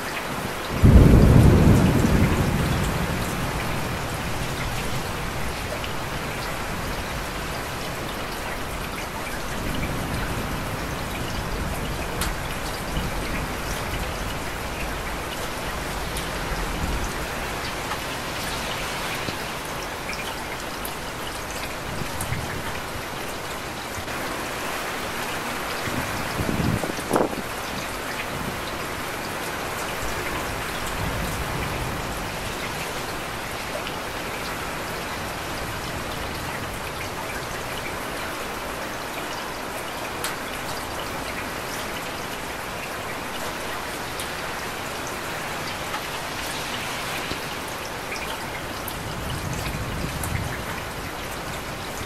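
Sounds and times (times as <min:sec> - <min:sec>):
steady rain: 0:00.0 - 0:52.0
thunder clap and rumble: 0:00.8 - 0:06.2, 0:25.8 - 0:27.6, 0:48.8 - 0:52.0.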